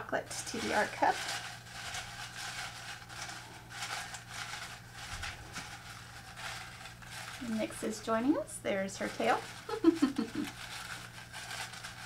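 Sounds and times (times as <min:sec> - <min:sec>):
paper slips rustling in a mug: 0:00.2 - 0:12.0.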